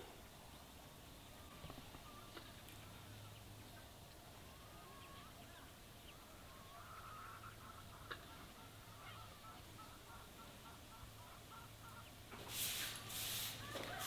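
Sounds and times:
faint bird calls: 1.2s - 12.3s.

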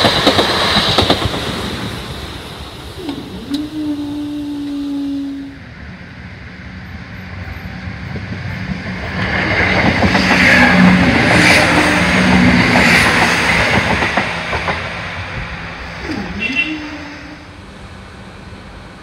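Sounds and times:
wheels clicking over rails: 0.0s - 2.2s
diesel train passing: 0.0s - 19.0s.

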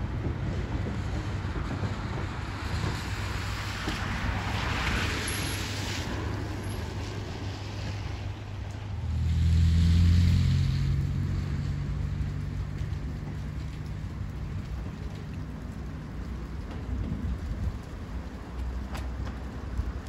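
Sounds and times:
steam locomotive rushing: 0.0s - 10.1s.

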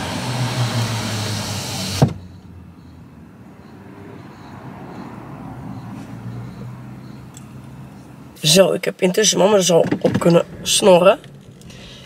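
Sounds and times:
street noise: 0.0s - 12.0s
car door shutting: 0.9s - 2.2s, 9.6s - 12.0s
car engine running: 9.5s - 12.0s.

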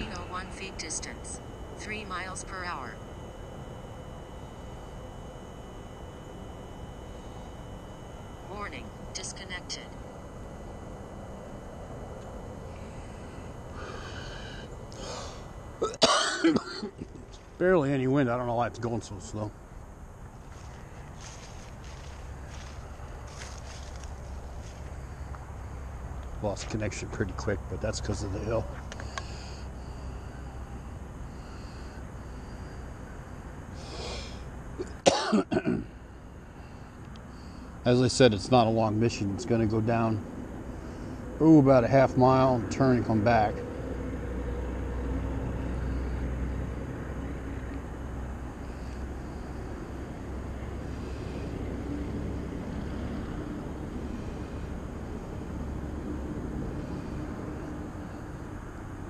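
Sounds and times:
faint hum: 0.0s - 59.0s
low outdoor rumble and hiss: 0.0s - 59.0s
man coughing: 15.8s - 17.1s, 34.8s - 35.9s.

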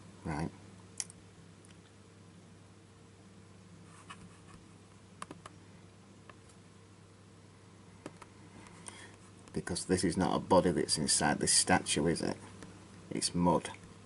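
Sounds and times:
low electrical hum: 0.0s - 14.0s
computer mouse clicks: 5.2s - 5.6s.

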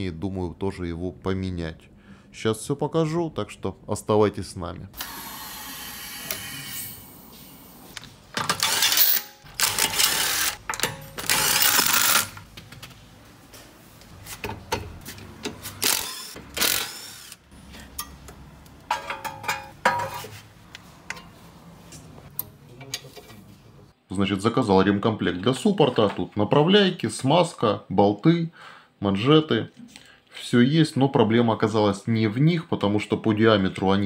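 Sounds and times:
metal clanks and clicks: 10.6s - 11.4s.

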